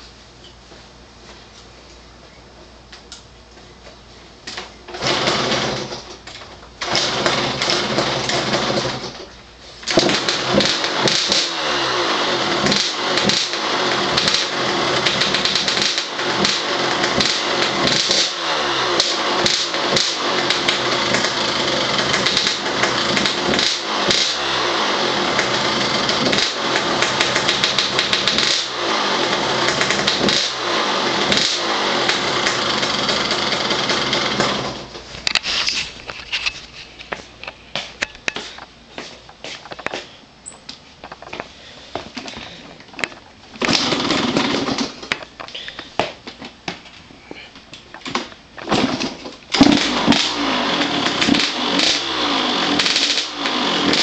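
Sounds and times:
dirt bike engine revving: 0:04.9 - 0:06.1, 0:06.8 - 0:09.2, 0:09.8 - 0:35.0, 0:43.6 - 0:45.7, 0:48.6 - 0:54.0.

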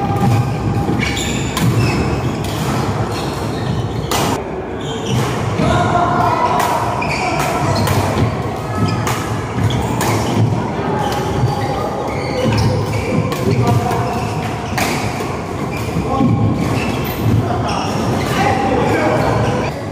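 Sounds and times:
voices chattering: 0:00.0 - 0:19.9
rackets hitting shuttlecock: 0:00.1 - 0:03.0, 0:04.0 - 0:04.4, 0:06.6 - 0:11.5.

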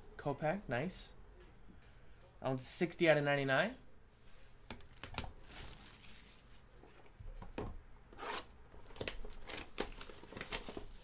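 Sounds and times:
shrink wrap tearing and crinkling: 0:04.9 - 0:06.8, 0:08.8 - 0:11.0.

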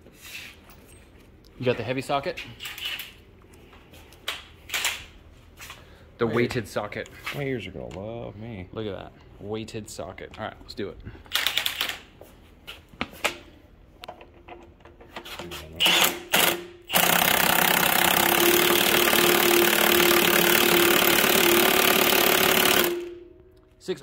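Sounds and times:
impact wrench hammering: 0:15.8 - 0:23.4.

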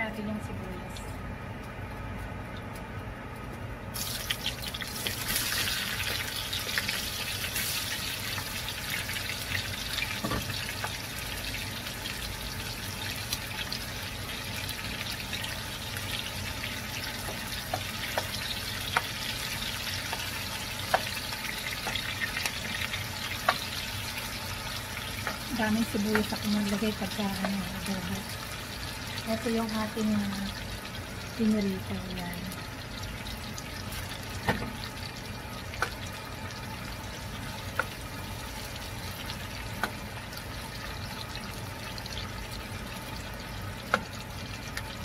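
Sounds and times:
onions sizzling in hot oil: 0:03.9 - 0:45.0
spatula knocking pan: 0:25.2 - 0:27.8.

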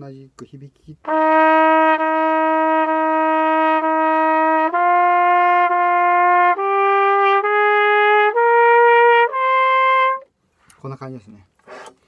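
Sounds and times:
trumpet playing long notes: 0:01.0 - 0:10.3.

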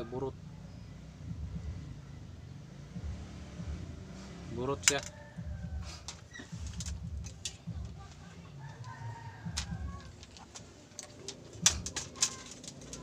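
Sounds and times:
plastic parts clicking and knocking: 0:04.8 - 0:05.2, 0:06.0 - 0:08.2, 0:08.8 - 0:13.0.

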